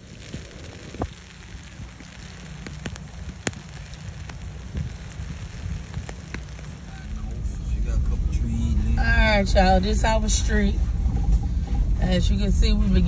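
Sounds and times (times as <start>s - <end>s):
tyres crackling hiss: 0.0s - 10.7s
road rumble inside vehicle: 0.0s - 13.0s.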